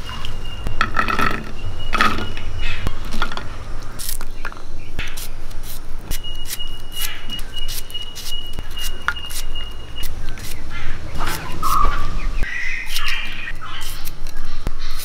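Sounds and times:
knife slicing shallots: 0:12.8 - 0:15.0.

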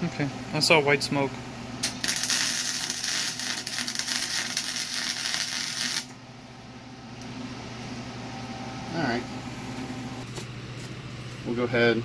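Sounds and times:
welding arc crackling: 0:01.8 - 0:06.2.

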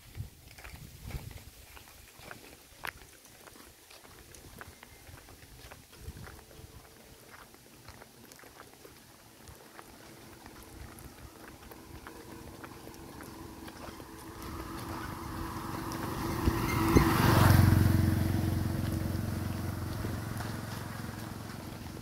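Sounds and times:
motorcycle passing by: 0:09.8 - 0:22.0.

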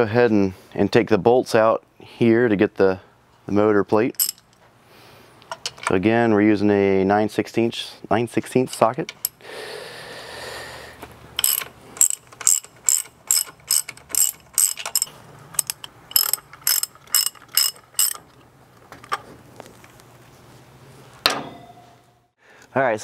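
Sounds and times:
ratchet wrench clicking: 0:04.2 - 0:04.6, 0:11.4 - 0:18.2.

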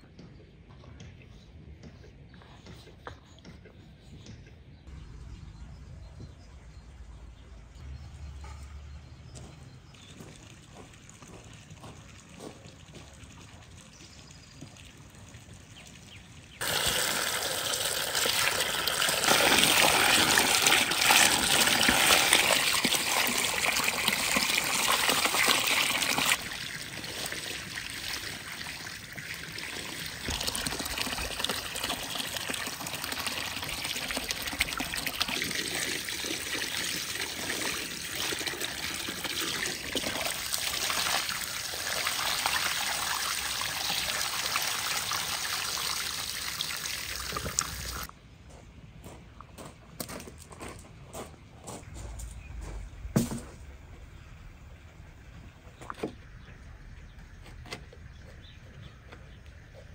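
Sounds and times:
water splashing over vegetables: 0:10.4 - 0:48.1.

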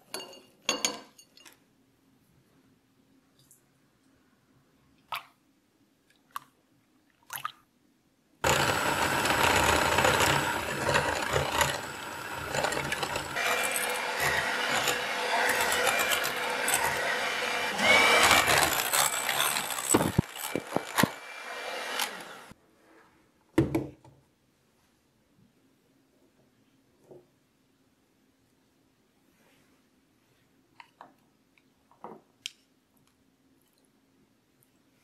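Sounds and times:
electric hand mixer whipping: 0:08.4 - 0:22.5.

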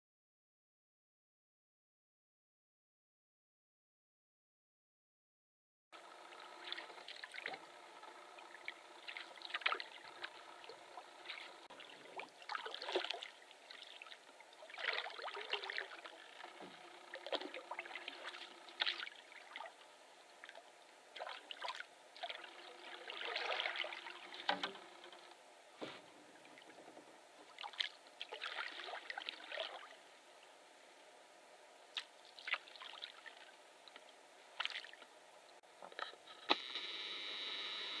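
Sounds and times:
paddle swishing through water: 0:06.3 - 0:19.8, 0:20.4 - 0:29.9.

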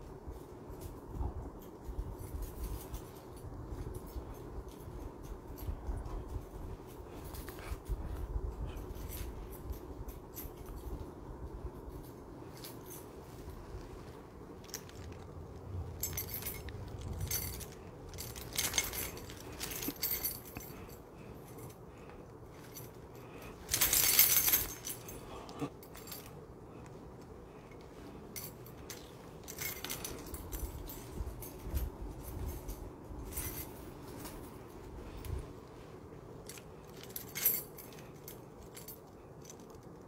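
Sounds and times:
small objects clinking and rustling: 0:11.8 - 0:26.4, 0:27.6 - 0:35.4.

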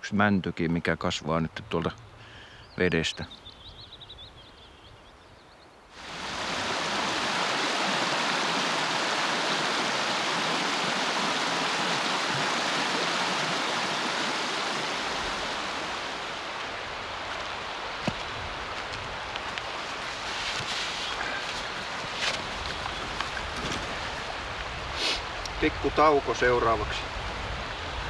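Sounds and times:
fast-flowing stream rushing: 0:05.9 - 0:28.0.

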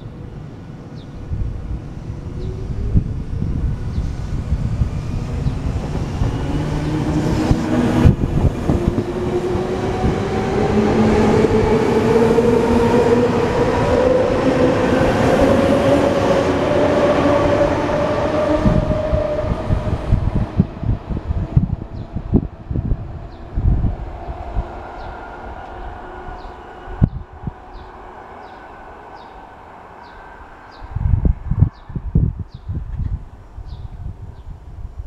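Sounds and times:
train wheels rumbling and clattering: 0:03.0 - 0:30.2.

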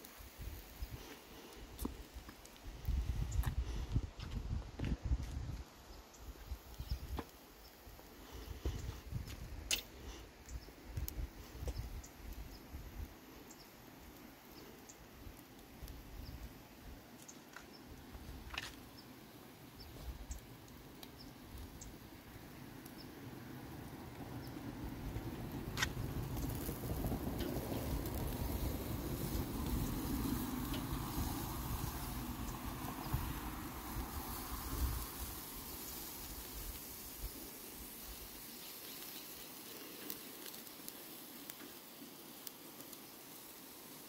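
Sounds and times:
steaks sizzling on a grill: 0:00.0 - 0:03.9, 0:05.6 - 0:44.0
low fluttering rumble: 0:23.5 - 0:37.5.

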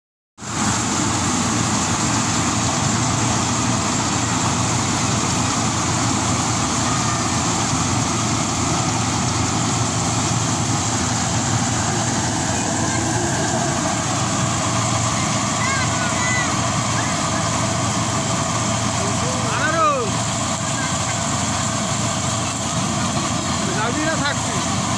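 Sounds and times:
combine harvester engine droning: 0:00.4 - 0:24.9.

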